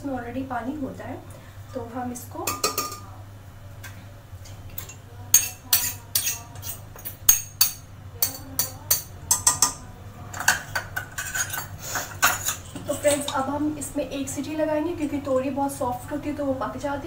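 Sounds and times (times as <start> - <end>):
metal spoon clinking in a pot: 4.8 - 13.4.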